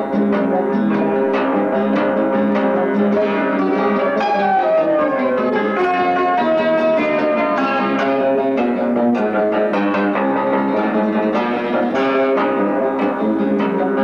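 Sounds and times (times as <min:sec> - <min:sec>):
nylon-string guitar: 0:00.0 - 0:14.0
flute playing quick runs: 0:03.7 - 0:07.4.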